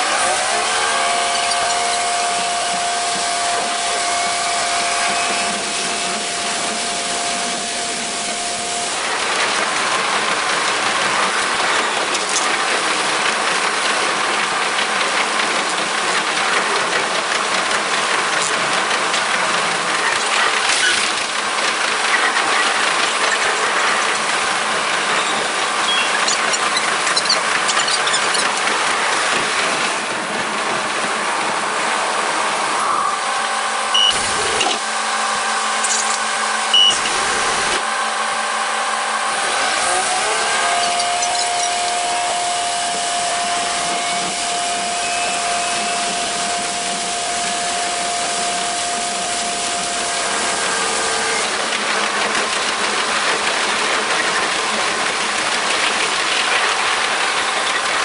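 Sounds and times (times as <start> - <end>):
diesel railcar engine drone: 0.0 - 58.0
train clattering: 0.9 - 32.4, 40.4 - 58.0
short high beeps: 25.9 - 26.2, 34.0 - 34.2, 35.8 - 37.0.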